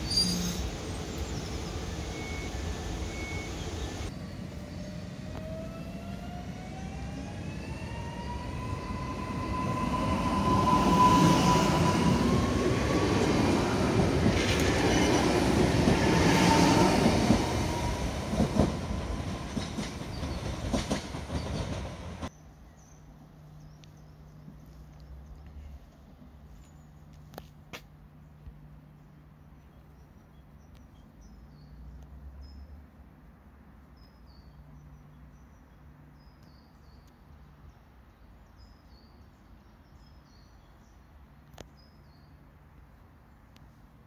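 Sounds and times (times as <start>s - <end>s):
electric train traction whine: 0.0s - 21.6s
another train rumbling: 0.0s - 22.3s
train wheels rumbling and clattering: 9.8s - 22.3s.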